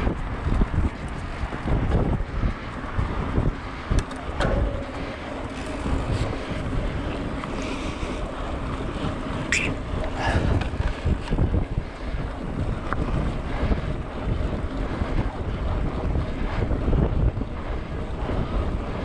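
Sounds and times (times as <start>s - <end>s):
wind buffeting microphone: 0.0s - 19.0s
sharp clicks or rattles: 3.9s - 7.9s.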